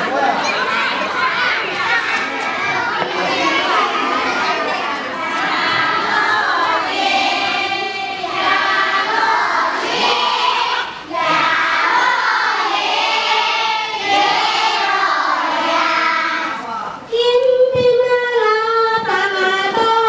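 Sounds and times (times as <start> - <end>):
children and adults singing: 0.0 - 20.0.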